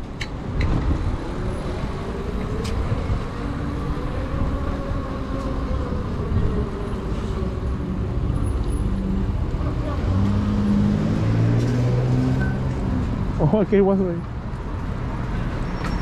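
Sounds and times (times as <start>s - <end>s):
wind noise: 0.0s - 10.4s
road rumble: 0.0s - 16.0s.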